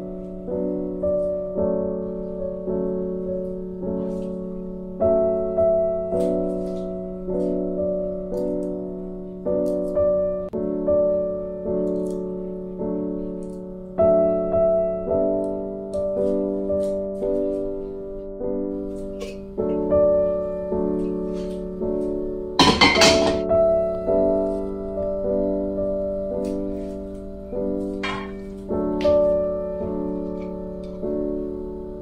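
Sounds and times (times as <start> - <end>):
gentle piano music: 0.0 - 32.0.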